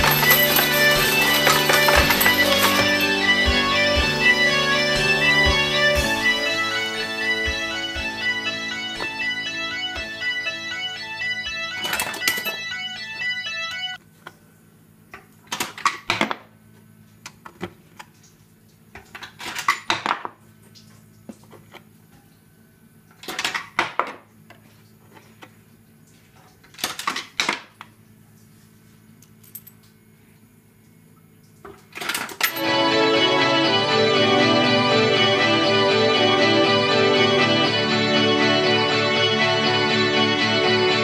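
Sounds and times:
coins clattering in slot machine: 0:00.0 - 0:03.2, 0:11.8 - 0:12.7.

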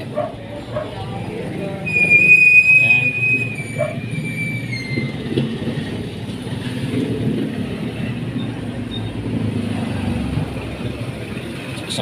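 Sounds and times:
vehicle engine rumbling: 0:00.0 - 0:12.0
high tone sliding down: 0:01.8 - 0:04.6.

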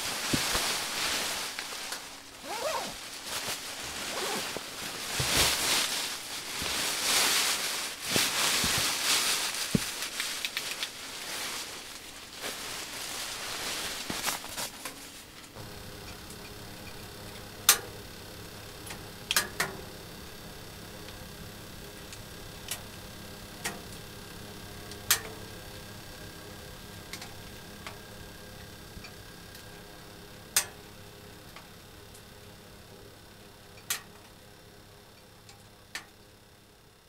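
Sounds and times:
fabric rustling: 0:00.0 - 0:15.4
fire crackles: 0:00.0 - 0:32.5
wood fire burning: 0:00.0 - 0:35.0.

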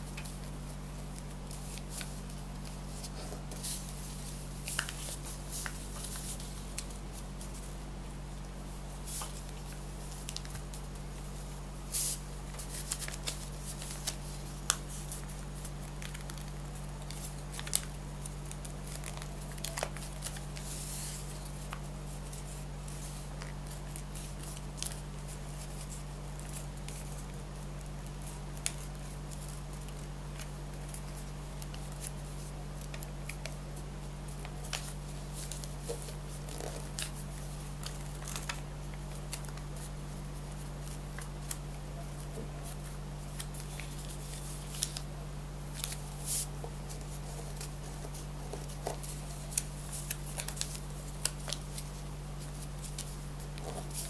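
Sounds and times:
paper rustling and creasing: 0:00.0 - 0:07.8, 0:08.8 - 0:54.0.

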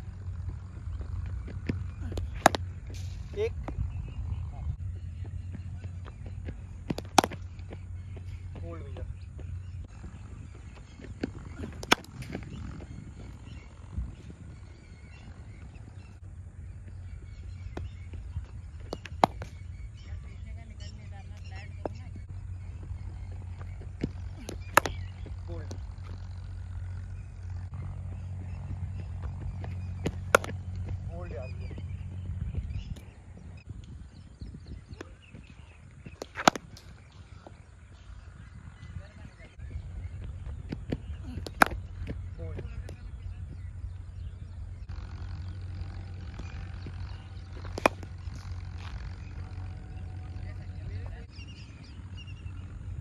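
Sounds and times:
birds chirping: 0:00.0 - 0:53.0
low background rumble: 0:00.0 - 0:53.0
cricket bat striking ball: 0:01.6 - 0:03.8, 0:06.9 - 0:08.2, 0:11.6 - 0:12.6, 0:18.8 - 0:19.9, 0:23.6 - 0:25.3, 0:30.0 - 0:31.0, 0:36.1 - 0:37.0, 0:41.0 - 0:42.2, 0:47.5 - 0:49.0.

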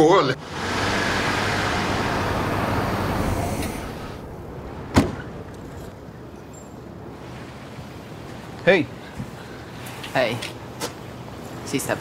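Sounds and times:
steady rushing noise: 0:00.3 - 0:08.9
door slamming shut: 0:04.9 - 0:05.3.

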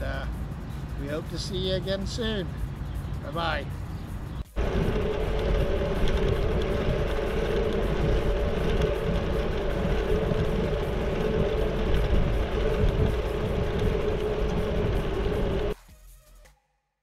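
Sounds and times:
steady hum: 0:04.0 - 0:15.8
bicycle rolling on pavement: 0:04.2 - 0:15.8
wind rush: 0:04.4 - 0:15.8.

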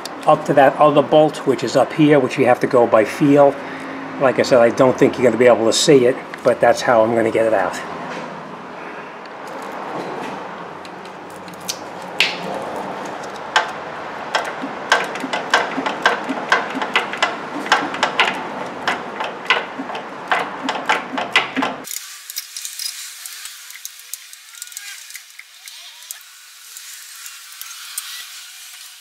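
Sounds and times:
hand ratchet clicking: 0:13.2 - 0:28.8.

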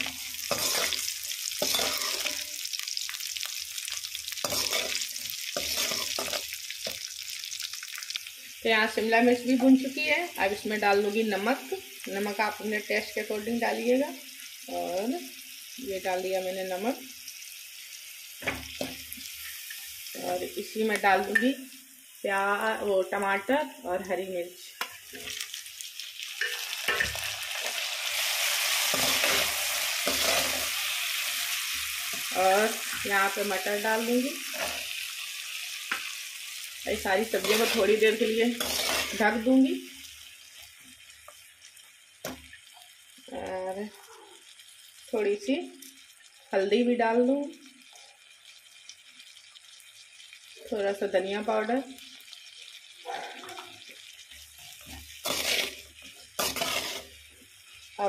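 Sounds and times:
metal spoon stirring: 0:00.0 - 0:02.6, 0:04.4 - 0:07.1, 0:28.9 - 0:30.8, 0:37.3 - 0:39.4, 0:54.6 - 0:57.2
steel ladle scraping a pan: 0:00.0 - 0:02.6, 0:04.4 - 0:07.1, 0:26.4 - 0:30.8, 0:37.3 - 0:39.5, 0:54.6 - 0:57.2
vegetables sizzling in hot oil: 0:00.0 - 0:58.0.

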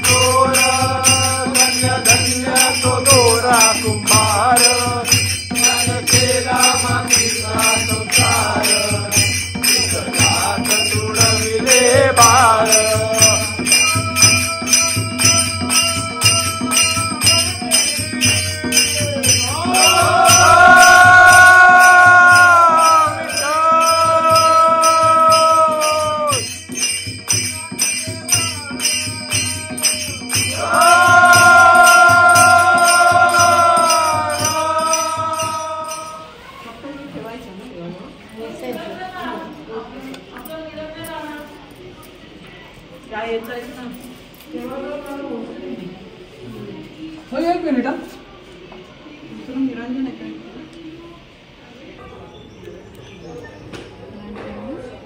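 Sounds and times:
devotional music with jingling beat: 0:00.0 - 0:36.4.

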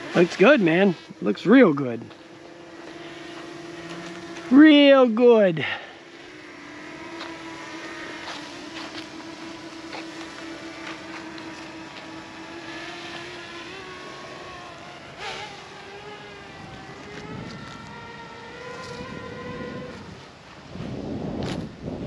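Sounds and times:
drone propellers humming: 0:00.0 - 0:22.0
wind buffeting microphone: 0:06.0 - 0:22.0.

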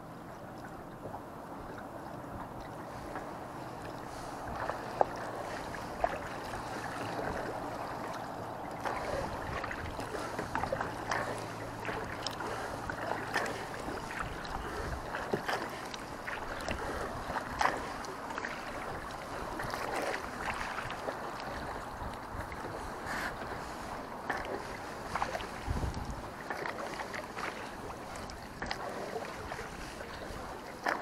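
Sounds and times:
paddle blades splashing: 0:00.0 - 0:31.0
waves lapping against hull: 0:00.0 - 0:31.0.

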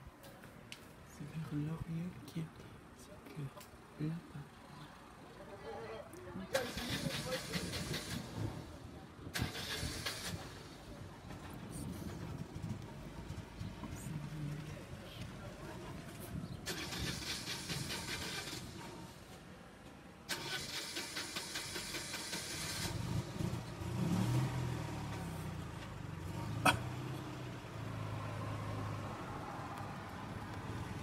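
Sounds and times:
engine cranking and idling: 0:06.5 - 0:14.0, 0:15.6 - 0:19.4, 0:20.2 - 0:27.8.

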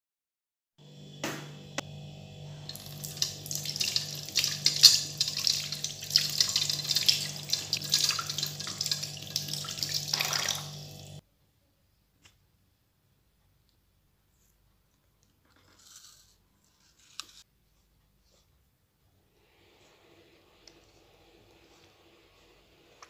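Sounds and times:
tap water splashing over apple: 0:02.7 - 0:11.2.

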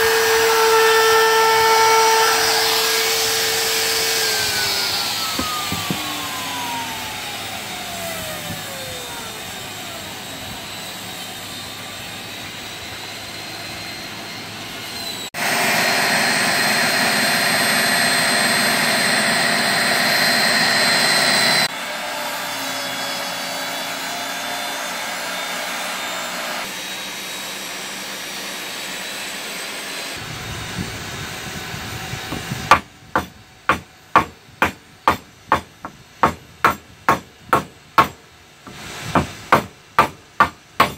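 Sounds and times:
table saw cutting board: 0:00.0 - 0:40.9
falling whine: 0:01.6 - 0:36.6
hammer striking wood: 0:05.4 - 0:06.0, 0:32.3 - 0:40.9.

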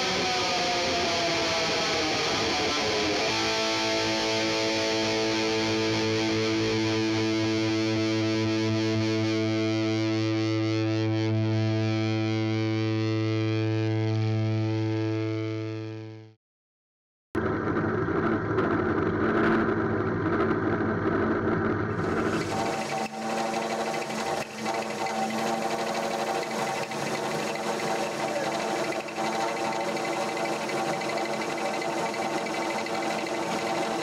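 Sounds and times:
distorted electric guitar chord: 0:00.0 - 0:10.2
drill press motor whirring: 0:22.0 - 0:34.0.

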